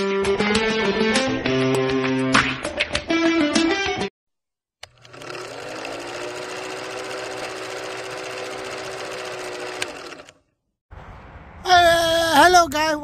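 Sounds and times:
film projector clattering: 0:04.8 - 0:10.4.

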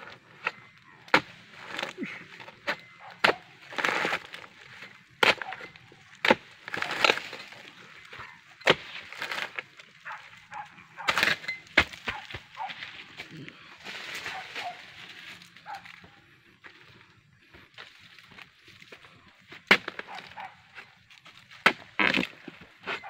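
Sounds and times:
chisel chopping palm fronds: 0:00.0 - 0:13.3, 0:19.6 - 0:23.0
wood splitting: 0:00.0 - 0:13.3, 0:19.5 - 0:23.0.

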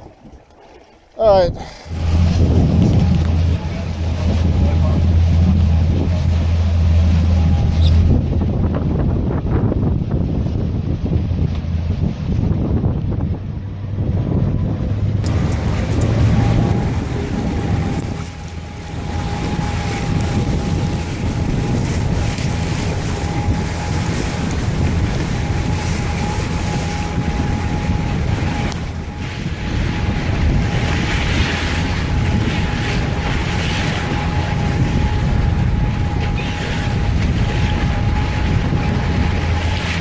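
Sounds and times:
boat engine humming: 0:00.0 - 0:40.0
wind buffeting microphone: 0:00.0 - 0:40.0
thin steady whine: 0:01.9 - 0:09.8.

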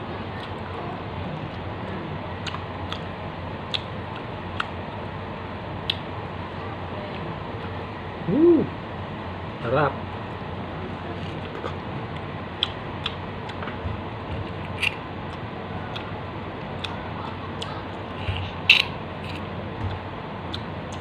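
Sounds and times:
steady background hiss: 0:00.0 - 0:21.0
person chewing with wet smacks: 0:02.4 - 0:03.1, 0:03.7 - 0:04.8, 0:05.8 - 0:06.0, 0:11.2 - 0:13.7, 0:14.4 - 0:21.0.

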